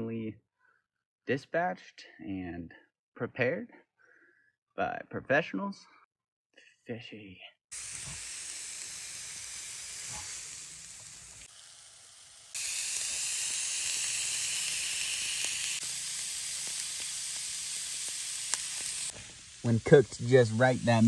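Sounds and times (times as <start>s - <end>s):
fish sizzling on a grill: 7.7s - 21.0s.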